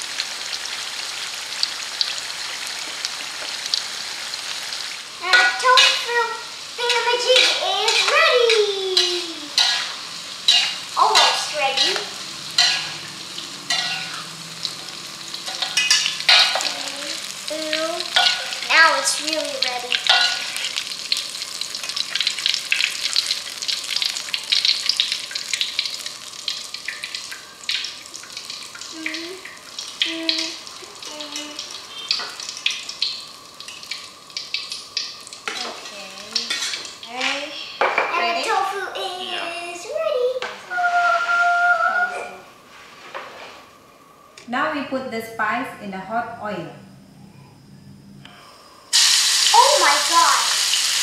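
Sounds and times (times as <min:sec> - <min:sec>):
tofu sizzling in oil: 0:00.0 - 0:41.7, 0:48.9 - 0:51.0
metal utensils scraping and clinking: 0:06.8 - 0:14.3, 0:15.4 - 0:16.8, 0:18.1 - 0:18.6, 0:20.1 - 0:20.7, 0:35.5 - 0:37.4.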